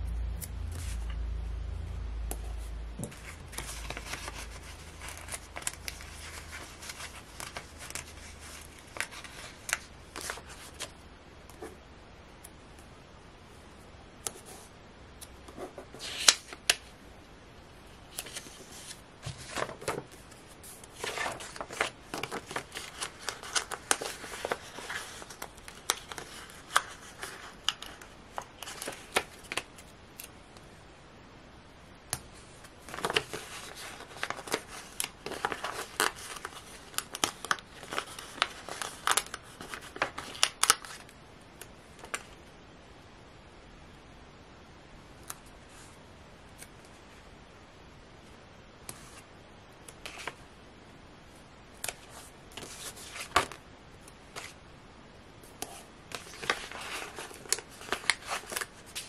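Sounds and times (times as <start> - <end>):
paper stickers rustling: 3.0 - 10.9, 18.1 - 29.9, 32.8 - 41.1, 55.6 - 59.0.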